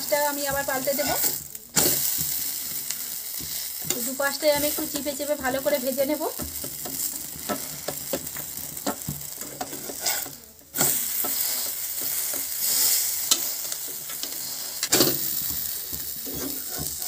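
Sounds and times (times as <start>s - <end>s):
pancake sizzling in oil: 0.0s - 17.0s
spatula clicking and scraping pan: 0.0s - 17.0s.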